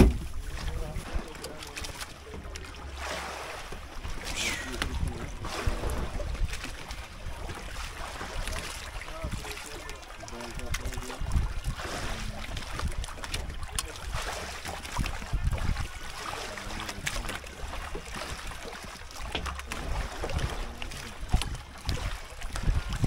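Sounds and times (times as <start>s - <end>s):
wind rumbling on microphone: 0.0s - 2.6s, 3.8s - 23.0s
water lapping against boat hull: 0.0s - 23.0s
faint voices: 4.1s - 6.2s, 7.2s - 12.7s, 13.4s - 17.7s.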